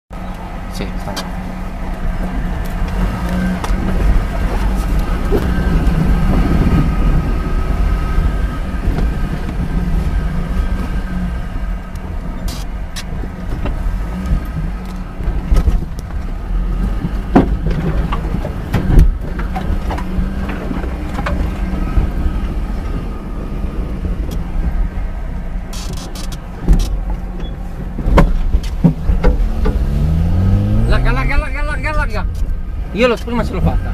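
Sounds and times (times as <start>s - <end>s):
car engine at low revs: 0.2s - 33.9s
car body and suspension clunks: 12.0s - 23.3s, 25.6s - 30.7s.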